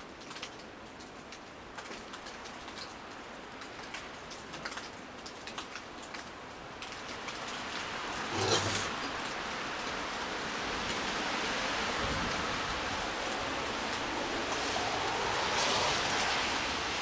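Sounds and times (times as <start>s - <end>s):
rain falling: 0.0s - 17.0s
dripping ticks: 0.2s - 7.9s.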